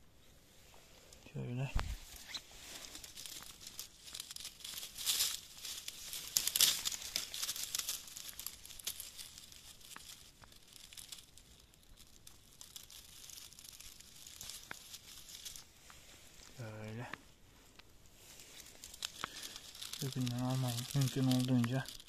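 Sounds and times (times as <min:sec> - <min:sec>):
twigs rustling and crackling: 0:00.0 - 0:22.0.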